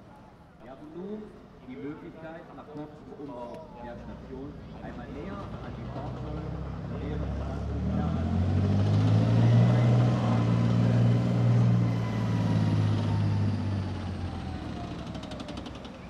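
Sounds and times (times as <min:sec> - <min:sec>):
tracked vehicle diesel engine: 0:03.4 - 0:16.0.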